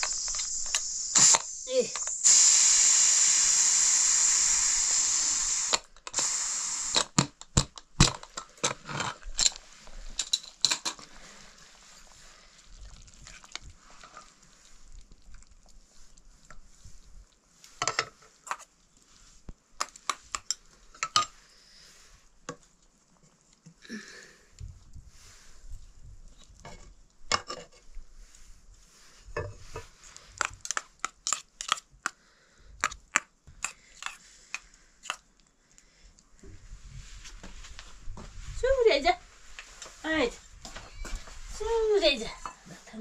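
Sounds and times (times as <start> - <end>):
pressure cooker hissing steam: 0.0 - 7.2.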